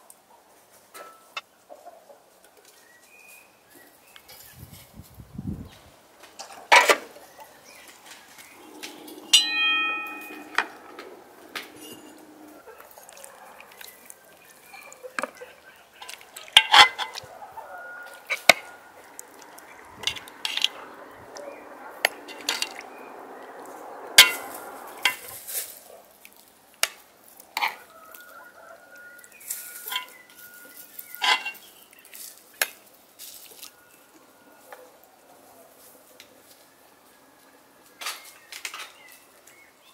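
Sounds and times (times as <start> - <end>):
cutlery clinking on metal pot: 9.2 - 12.4, 16.0 - 17.2, 31.2 - 31.6.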